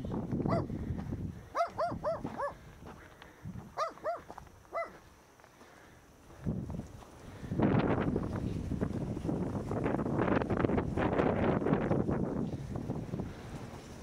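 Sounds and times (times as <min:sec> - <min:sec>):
dog barking: 0:00.5 - 0:00.7, 0:01.5 - 0:02.6, 0:03.8 - 0:05.0.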